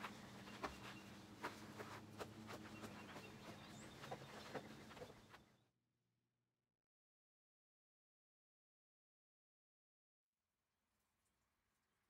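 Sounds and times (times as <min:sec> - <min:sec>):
child's footsteps hopping: 0:00.0 - 0:05.4.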